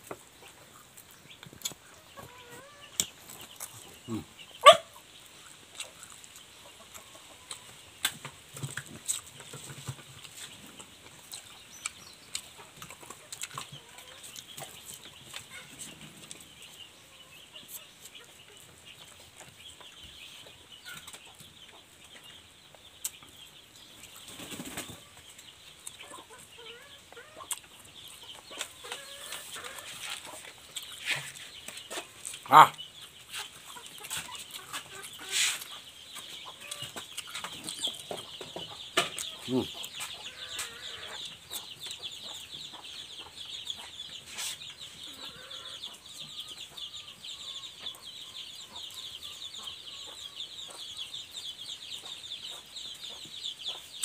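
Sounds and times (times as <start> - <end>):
man chewing and lip smacking: 5.4 - 9.3, 10.2 - 15.5, 27.5 - 28.7, 30.1 - 32.5.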